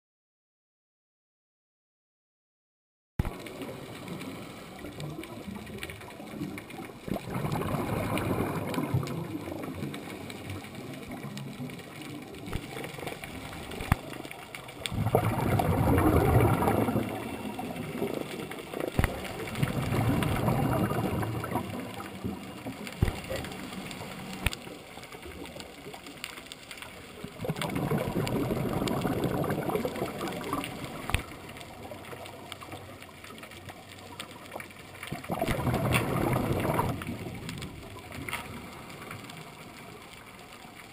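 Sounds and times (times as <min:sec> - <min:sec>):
low steady hiss: 0:03.3 - 0:40.9
diver's exhaled breath bubbling: 0:06.8 - 0:10.9, 0:14.8 - 0:24.5, 0:27.3 - 0:31.3, 0:35.1 - 0:39.6.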